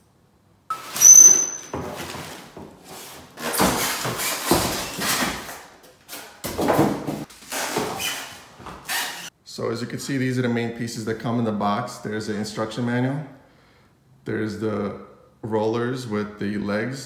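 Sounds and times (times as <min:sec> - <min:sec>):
styrofoam squeak: 0:00.7 - 0:02.4, 0:03.4 - 0:05.5, 0:07.4 - 0:09.3
packing scraping and rustling: 0:00.7 - 0:06.4.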